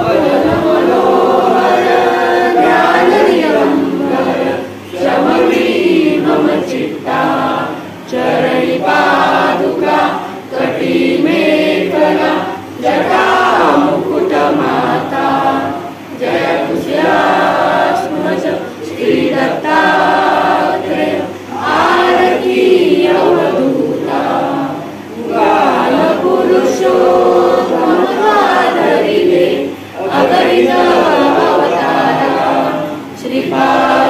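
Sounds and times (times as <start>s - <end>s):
group of voices singing: 0.0s - 34.0s.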